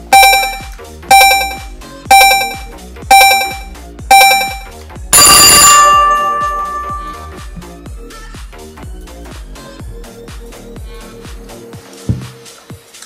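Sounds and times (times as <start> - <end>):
long final timer ring: 0.0 - 7.5
timer chime beeps: 0.0 - 7.5
background music: 0.0 - 13.0.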